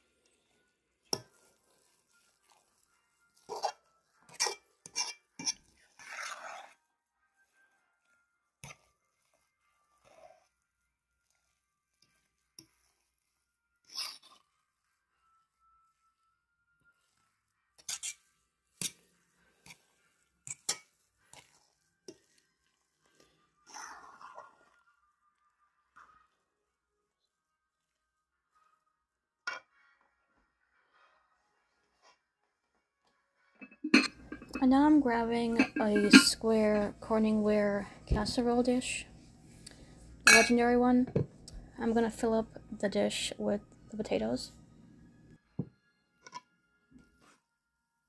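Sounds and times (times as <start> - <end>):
utensil scraping a bowl: 1.1 - 6.9, 8.6 - 10.6, 12.0 - 14.6, 17.7 - 24.9, 33.6 - 37.0.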